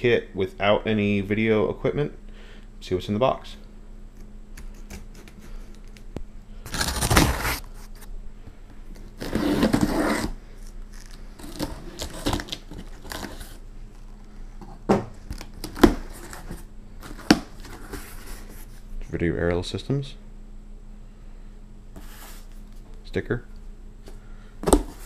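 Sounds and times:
packing tape ripping: 6.6 - 8.1, 9.0 - 10.3, 10.9 - 13.6, 15.3 - 17.8
cardboard box knocks and rustles: 24.6 - 25.0.

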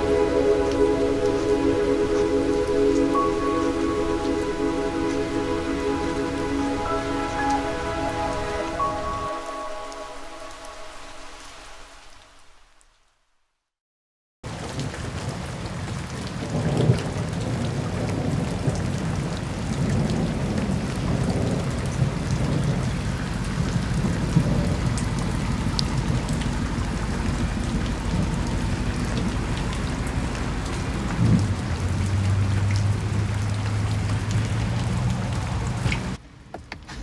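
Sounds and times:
rain and wet road noise: 0.0 - 12.8, 14.5 - 37.0
raindrop ticks: 14.5 - 36.8.

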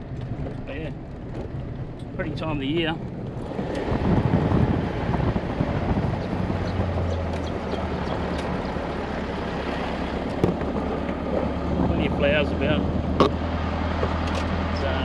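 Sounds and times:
wind noise: 0.0 - 14.7
car engine hum: 0.0 - 15.0
tyres rumbling on gravel: 0.0 - 15.0.

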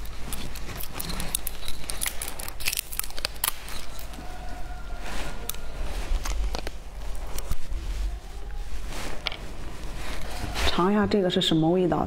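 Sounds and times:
plastic candy tube clicking and crinkling: 0.0 - 4.2.

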